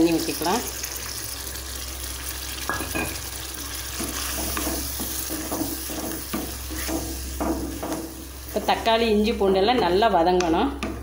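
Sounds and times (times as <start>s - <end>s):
masala sizzling in a pan: 0.0s - 10.6s
wooden spatula stirring and scraping: 3.6s - 11.0s.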